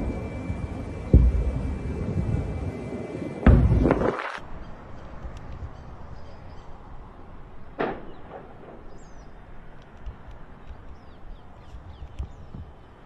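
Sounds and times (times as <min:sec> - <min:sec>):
low rumbling of fire: 0:00.0 - 0:13.0
sharp bang: 0:03.4 - 0:04.4, 0:07.8 - 0:09.1.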